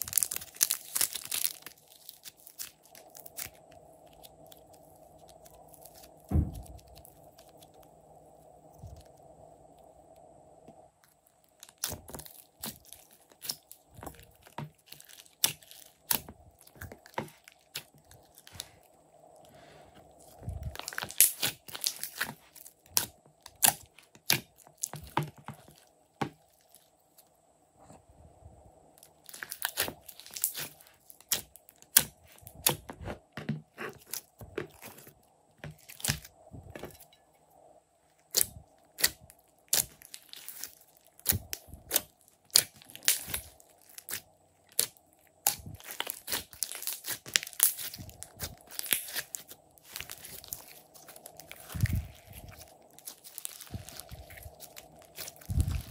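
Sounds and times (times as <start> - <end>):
slime popping and crackling: 0.0 - 7.9, 11.5 - 18.7, 20.4 - 26.9, 29.0 - 35.0, 35.6 - 36.3, 38.3 - 55.9.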